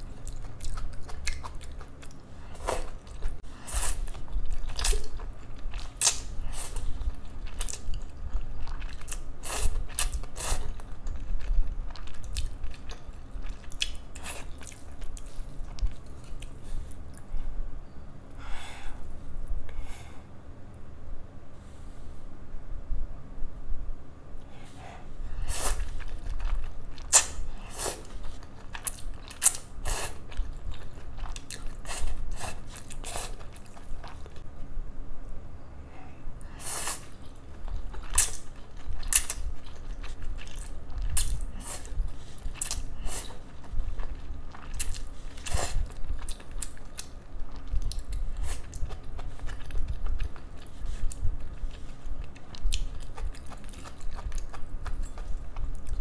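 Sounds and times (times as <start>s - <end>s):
noodles slurped and chewed: 36.6s - 56.0s.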